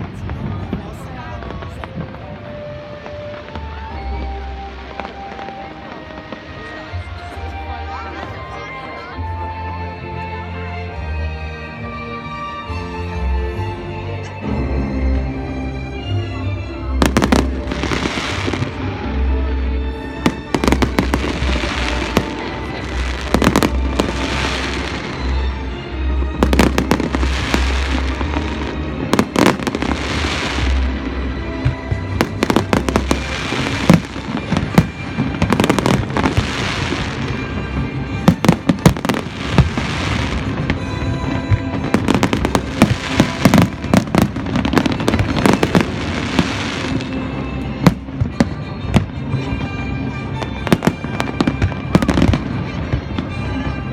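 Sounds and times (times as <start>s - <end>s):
fireworks bursting: 17.0s - 19.0s, 20.2s - 25.6s, 26.4s - 49.4s, 50.4s - 53.4s.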